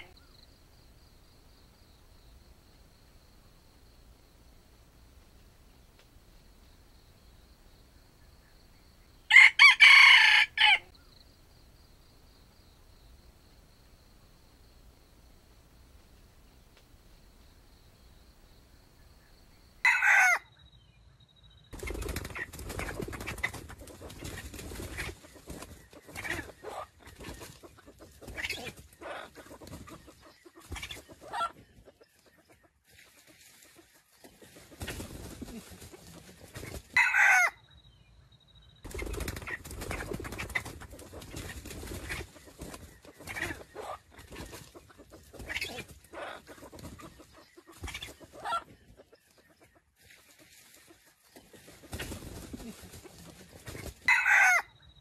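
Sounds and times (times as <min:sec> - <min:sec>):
chickens clucking: 0:21.7 - 0:37.5, 0:38.8 - 0:54.6
scuffling and wing flapping: 0:21.8 - 0:37.0, 0:38.9 - 0:54.2.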